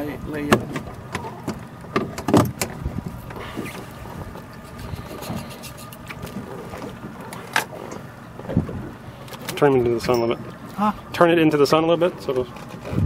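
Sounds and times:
knocks and clicks on boat: 0.0s - 10.8s, 12.0s - 13.0s
wind and water wash: 0.0s - 13.0s.

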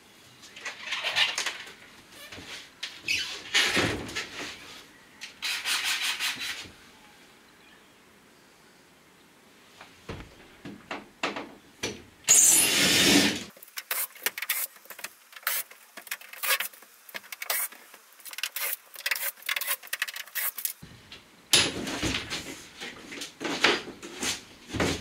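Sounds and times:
cordless drill running: 12.3s - 13.5s.

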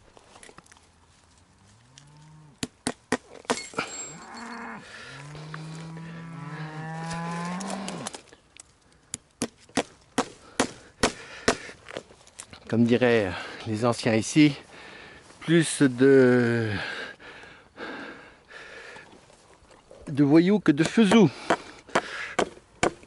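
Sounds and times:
cows mooing: 1.7s - 2.6s, 4.0s - 8.2s.

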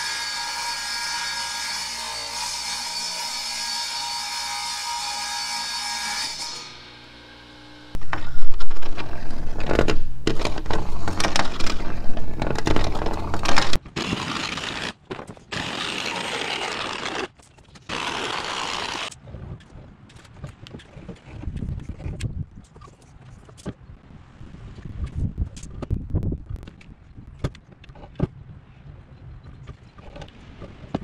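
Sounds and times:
panel scraping and knocking: 8.0s - 13.8s.

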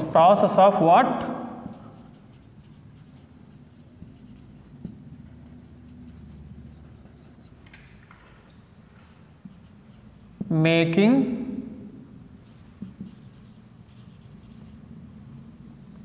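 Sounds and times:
marker scratching on whiteboard: 1.1s - 7.8s, 9.4s - 10.4s, 12.4s - 14.9s.

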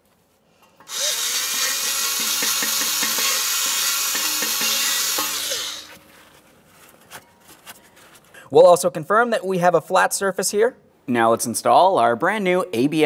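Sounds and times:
power drill wire brush scraping: 0.8s - 6.4s.

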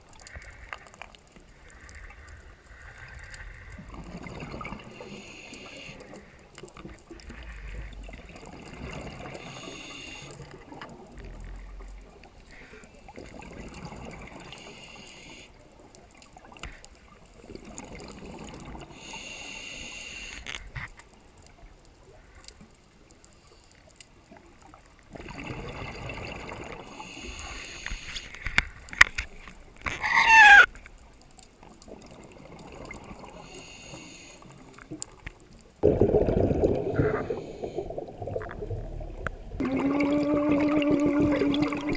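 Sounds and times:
regulator hiss on inhale: 4.8s - 6.6s, 9.1s - 13.2s, 14.2s - 15.8s, 18.8s - 20.8s, 26.8s - 28.8s, 33.2s - 34.9s, 36.9s - 38.2s
bubbling exhaust: 35.8s - 41.9s.

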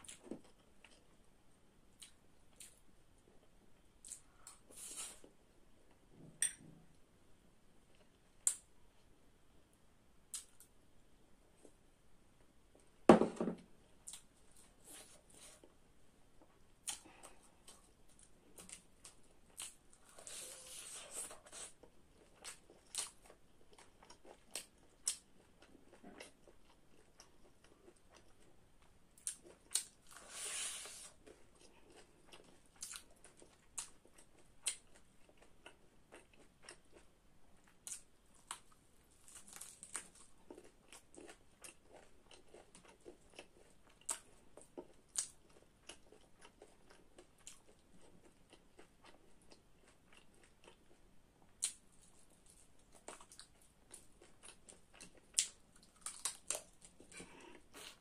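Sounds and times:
chewing fried chicken: 16.8s - 58.0s.

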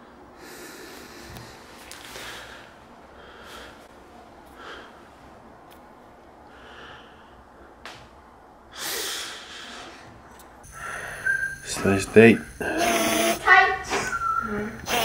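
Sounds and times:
man breathing through nose: 0.4s - 3.9s, 6.5s - 7.8s, 8.7s - 11.6s
forceful breath out: 8.8s - 11.6s.

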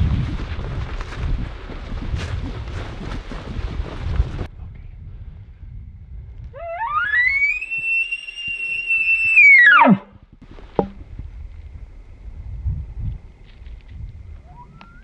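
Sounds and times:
elk bugling: 6.6s - 10.1s, 14.4s - 15.0s.

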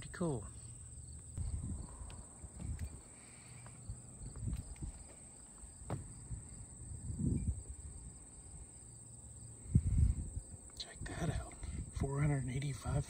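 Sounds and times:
high-pitched insect chorus: 0.0s - 13.0s
soft low thumps: 1.3s - 7.6s.

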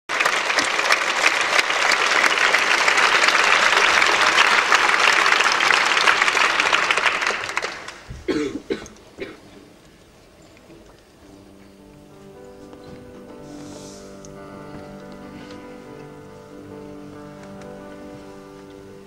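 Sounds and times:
audience applauding: 0.1s - 8.5s.

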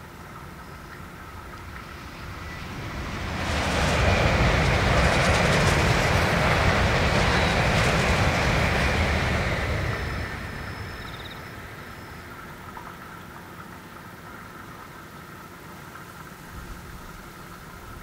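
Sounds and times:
high-speed train passing: 0.0s - 13.1s.

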